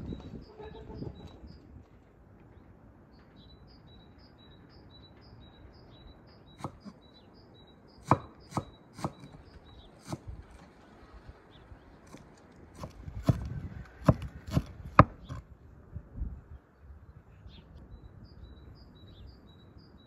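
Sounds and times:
bird chirping: 0.0s - 1.8s, 2.5s - 12.4s, 16.5s - 20.0s
knife chopping on wooden board: 8.0s - 9.4s, 12.8s - 15.4s.

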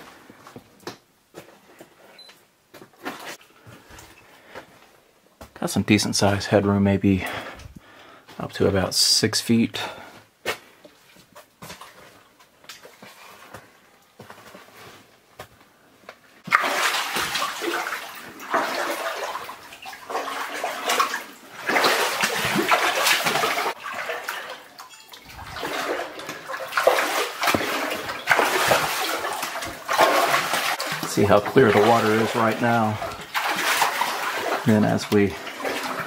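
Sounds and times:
boots splashing through water: 16.4s - 36.0s.

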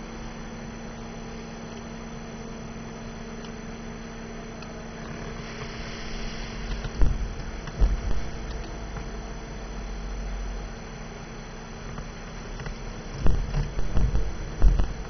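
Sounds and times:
low hum: 0.0s - 15.0s
faint hiss: 5.1s - 9.0s
low thump: 6.8s - 8.6s, 13.2s - 15.0s.

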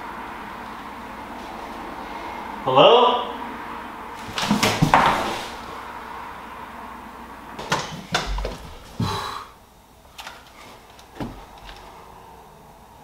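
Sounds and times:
knocks on door: 4.4s - 5.4s.

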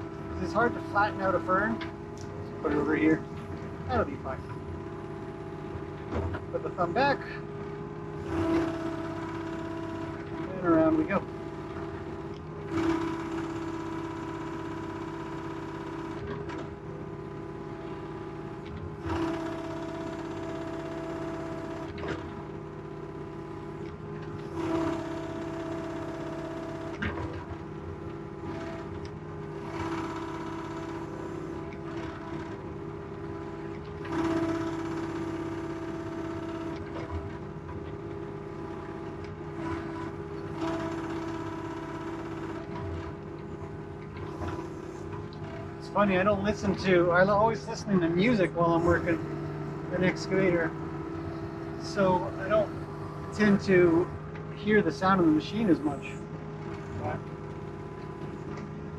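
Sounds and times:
excavator diesel engine running: 0.0s - 58.9s
hydraulic whine: 0.0s - 58.9s.

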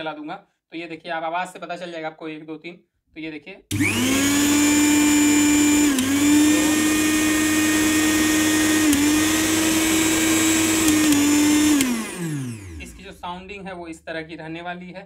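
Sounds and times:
mixer grinder motor whining: 3.7s - 14.0s.

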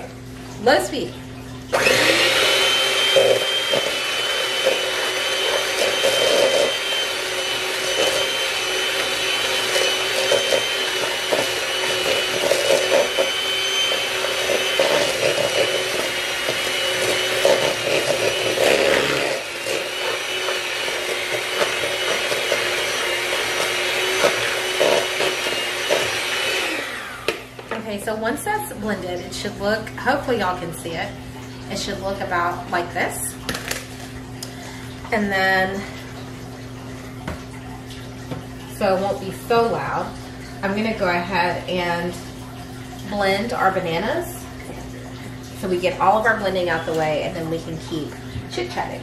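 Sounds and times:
electric mixer motor whine: 1.7s - 27.8s.

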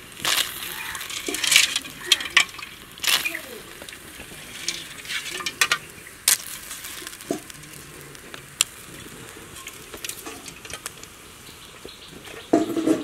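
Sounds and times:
water sizzling in a hot wok: 0.0s - 13.0s.

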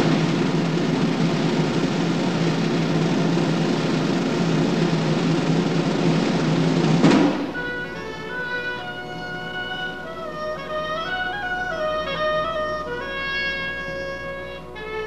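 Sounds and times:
drum roll: 0.0s - 14.3s
tune on pitched instruments: 0.0s - 15.0s.

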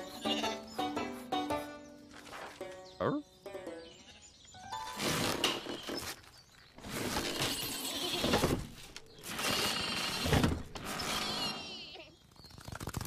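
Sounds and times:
rough rubbing and scraping: 4.9s - 11.9s.

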